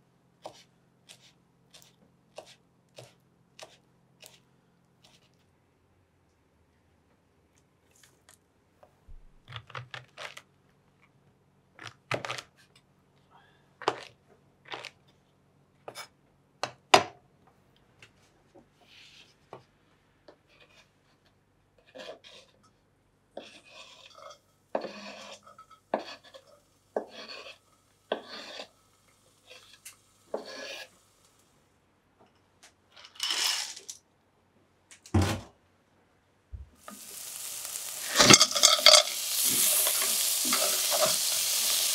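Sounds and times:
scraping on cutting board: 0:23.4 - 0:28.8, 0:29.4 - 0:31.0.

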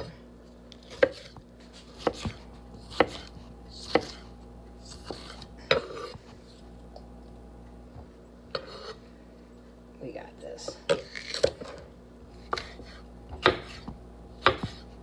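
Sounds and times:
knife chopping on wooden board: 0:00.8 - 0:06.2, 0:12.4 - 0:14.9.

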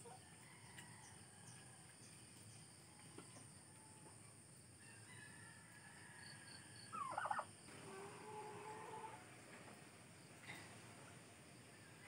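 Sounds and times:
lower steady animal call: 0:06.4 - 0:09.3.

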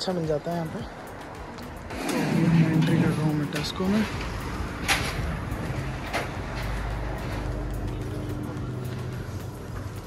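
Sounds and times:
supermarket ambience hum: 0:01.9 - 0:10.0.

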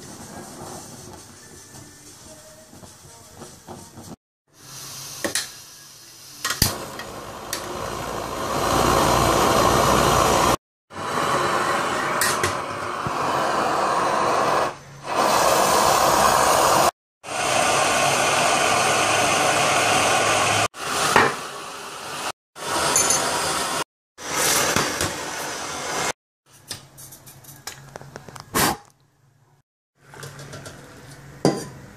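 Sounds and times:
camping stove hissing: 0:04.5 - 0:26.2.

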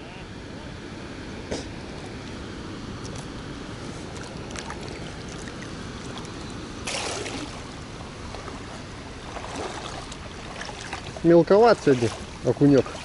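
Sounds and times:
hand splashing in river water: 0:04.0 - 0:07.7, 0:08.3 - 0:13.0.

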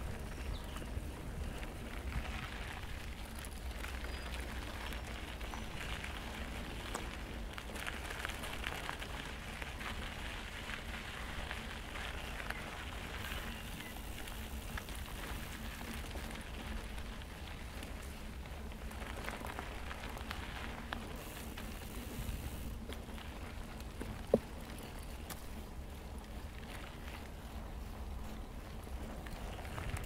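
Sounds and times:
bike tyres rolling on dirt trail: 0:00.0 - 0:30.0.

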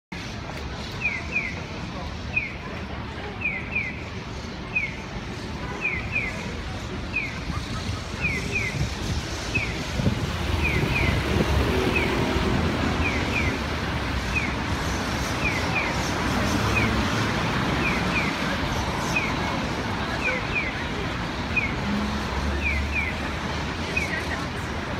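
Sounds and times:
street traffic rumble: 0:00.1 - 0:24.9
pedestrian crossing signal chirping: 0:10.5 - 0:24.4.

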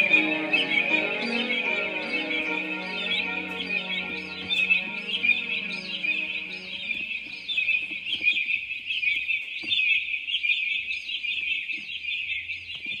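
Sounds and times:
soft sustained musical tone: 0:00.0 - 0:08.1
small birds chirping: 0:00.0 - 0:13.0.

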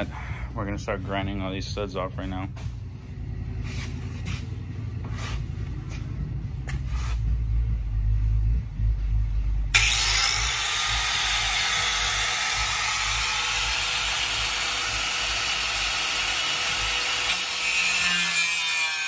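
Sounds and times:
angle grinder grinding steel: 0:09.7 - 0:19.0.

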